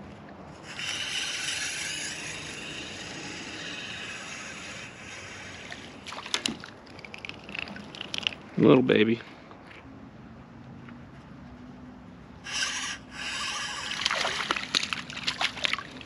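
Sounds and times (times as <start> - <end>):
fishing reel being cranked: 0.6 - 6.1, 12.5 - 15.0.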